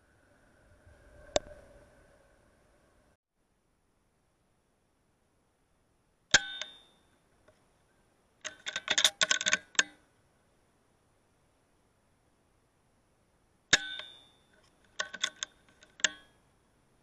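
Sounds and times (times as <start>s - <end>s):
metallic clicks and pings: 6.3s - 7.2s, 8.4s - 10.0s, 13.7s - 16.4s.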